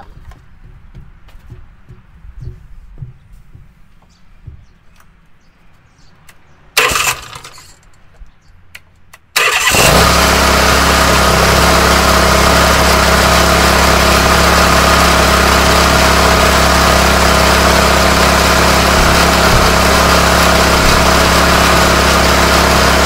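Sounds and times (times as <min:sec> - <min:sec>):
lawn tractor engine running: 0:06.8 - 0:07.8, 0:09.4 - 0:23.0.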